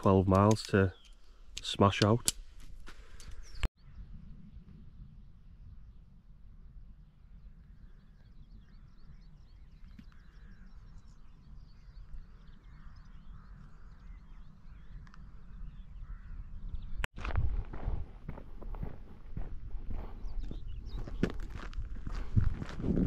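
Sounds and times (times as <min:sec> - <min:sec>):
birds calling and singing: 0:00.0 - 0:04.8, 0:06.7 - 0:17.1, 0:19.9 - 0:22.4
wind rumble on microphone: 0:02.6 - 0:23.0
loud footsteps: 0:17.2 - 0:23.0.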